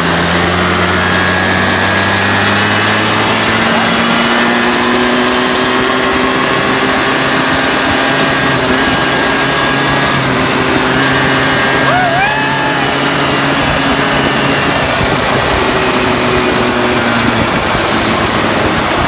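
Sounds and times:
small motorbike engine running: 0.0s - 19.0s
wind on microphone: 11.9s - 19.0s.

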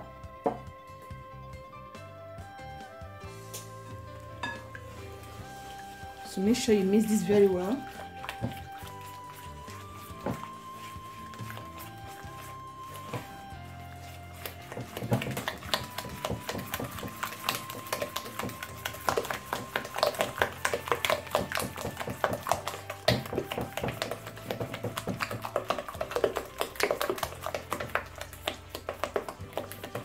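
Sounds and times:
spatula tapping glass bowl: 4.4s - 4.8s, 14.7s - 30.0s.

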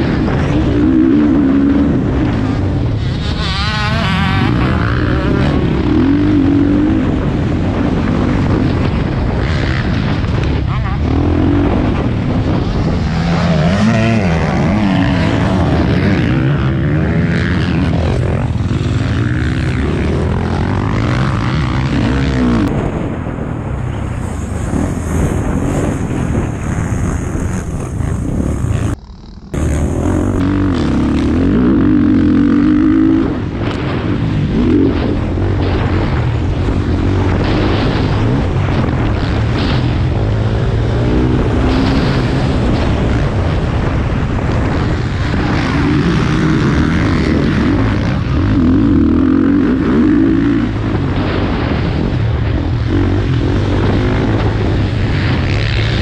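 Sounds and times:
motocross engine revving: 0.0s - 56.0s.

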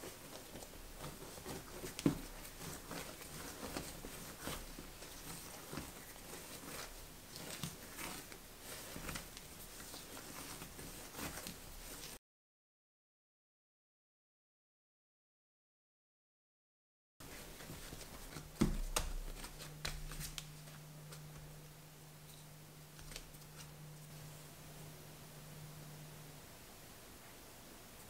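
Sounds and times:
hands kneading bread dough: 0.0s - 12.2s, 17.2s - 24.6s
dough thump: 18.3s - 20.5s.

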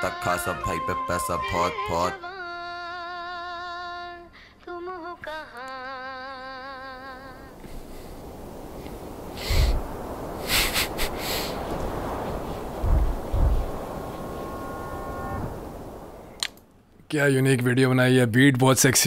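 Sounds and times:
person singing with vibrato: 0.0s - 7.6s
hiss-like noise: 2.6s - 16.6s
heavy thumps: 12.8s - 13.8s.

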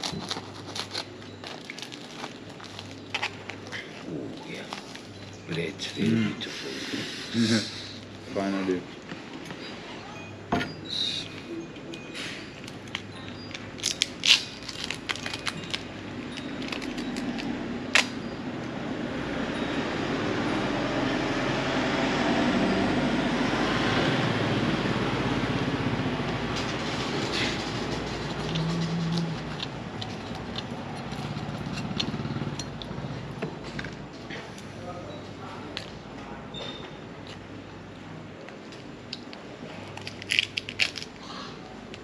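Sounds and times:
vehicle passing: 17.6s - 33.8s.

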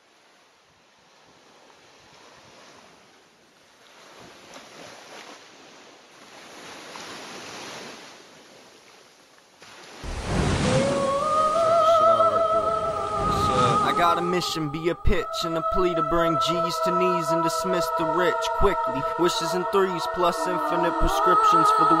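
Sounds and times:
rushing surf-like noise: 10.0s - 14.6s
hip-hop beat: 13.5s - 22.0s.

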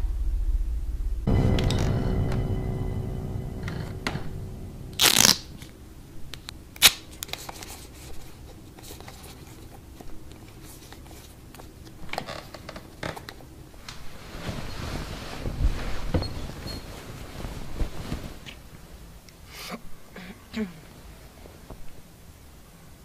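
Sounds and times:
rustling of clothing and bedding: 7.0s - 20.0s, 20.8s - 23.0s.

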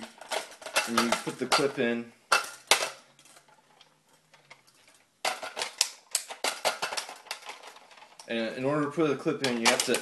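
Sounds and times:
toy blaster plastic clicks and rattles: 9.4s - 10.0s.

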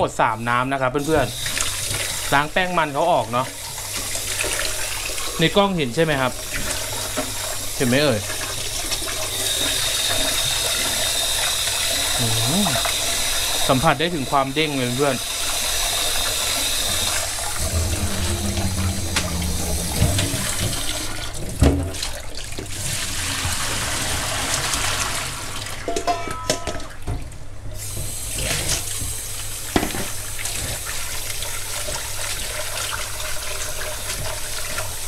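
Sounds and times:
tap water running into metal bowl: 0.8s - 35.0s
water poured into colander: 1.0s - 25.8s.

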